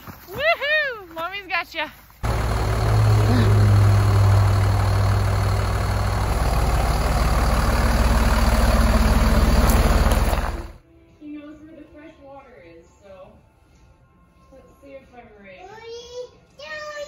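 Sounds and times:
truck diesel engine humming: 2.2 - 10.8.

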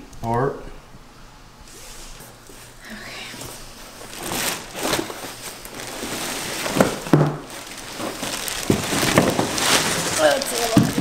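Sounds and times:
plastic bag crinkling: 3.8 - 11.0.

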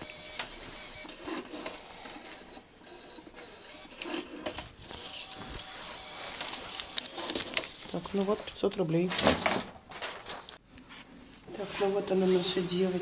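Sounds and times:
receipt printer running: 0.0 - 8.3
paper being handled: 3.0 - 11.0.

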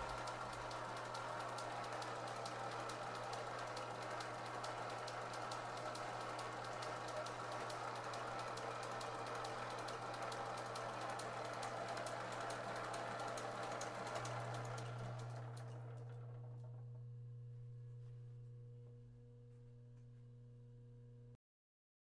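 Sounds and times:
grinder hum: 0.0 - 3.2
belt drive ticking and clatter: 0.0 - 16.2.

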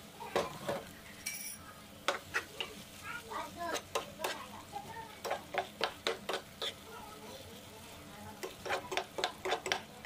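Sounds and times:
light sizzle: 0.0 - 10.0
metal spoon scraping frying pan: 1.4 - 2.8, 5.2 - 6.9, 8.4 - 9.9.

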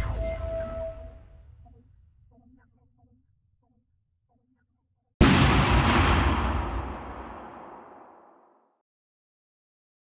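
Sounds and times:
deep electronic boom: 5.2 - 8.3.

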